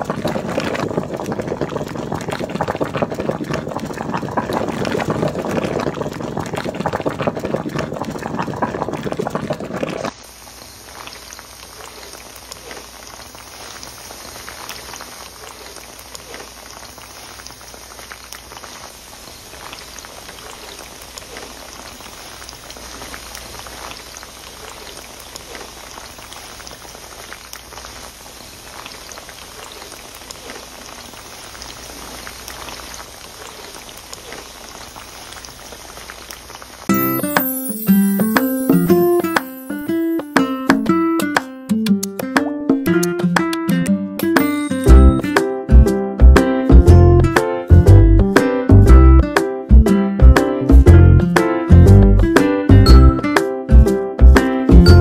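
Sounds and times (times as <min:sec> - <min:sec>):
soup boiling: 0:00.0 - 0:41.2
oil sizzling and crackling: 0:00.0 - 0:41.7, 0:44.2 - 0:55.0.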